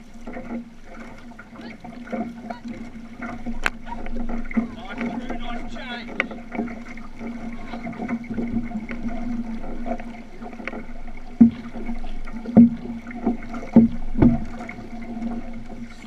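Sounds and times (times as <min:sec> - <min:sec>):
water splashing along canoe hull: 0:00.0 - 0:16.0.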